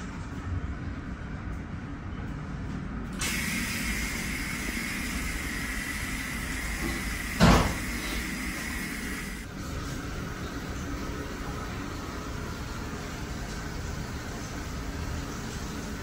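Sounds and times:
loud thump: 7.4s - 7.8s.

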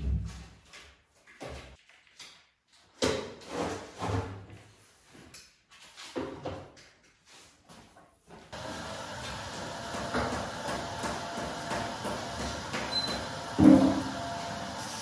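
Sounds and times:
handling scrapes and knocks: 3.2s - 8.5s.

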